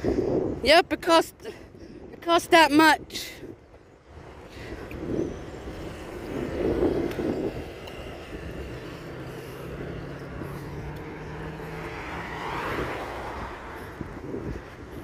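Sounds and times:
passing motor vehicle: 0:00.0 - 0:02.3, 0:03.4 - 0:15.0.

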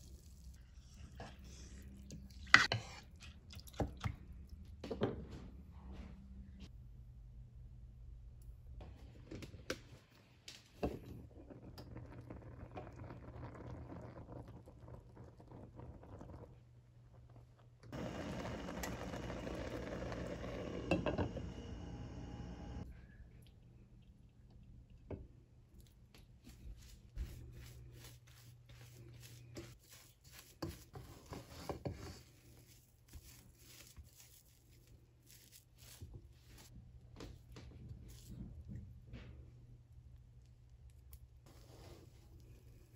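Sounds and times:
pot boiling and bubbling: 0:10.8 - 0:22.9
low hum: 0:17.9 - 0:24.7.

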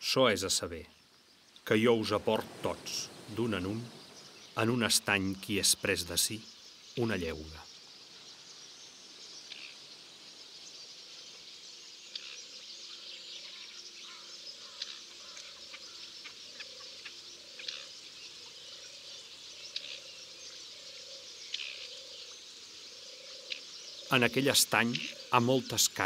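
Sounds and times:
chorus of insects: 0:00.0 - 0:26.0
low frog calls: 0:09.4 - 0:09.9, 0:12.1 - 0:26.0.

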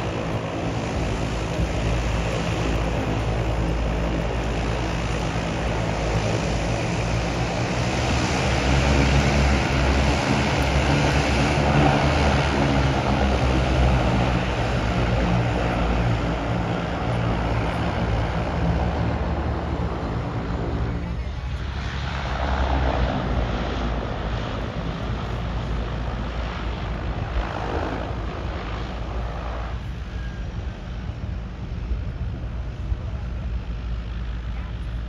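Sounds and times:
floatplane propeller drone: 0:00.0 - 0:35.0.

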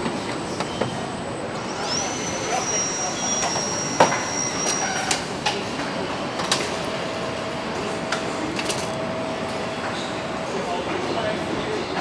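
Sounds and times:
steady mechanical hum: 0:00.0 - 0:12.0
thin high whine: 0:01.6 - 0:05.2
clicks and knocks of tools: 0:08.1 - 0:09.0.

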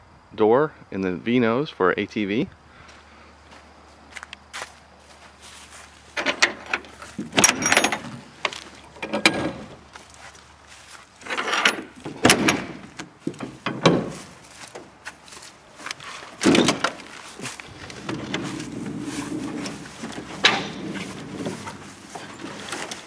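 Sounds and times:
metal door latch clicking and clunking: 0:06.2 - 0:09.8, 0:11.3 - 0:14.9, 0:16.4 - 0:17.1, 0:19.6 - 0:21.6.

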